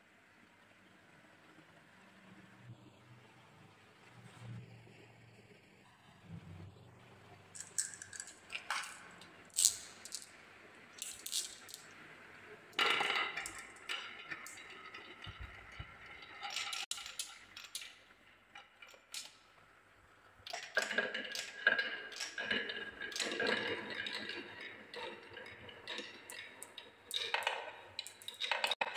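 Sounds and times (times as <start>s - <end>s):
marbles clacking on wooden run: 7.6s - 10.4s, 11.0s - 12.0s, 12.8s - 18.0s, 20.5s - 24.5s, 25.1s - 28.9s.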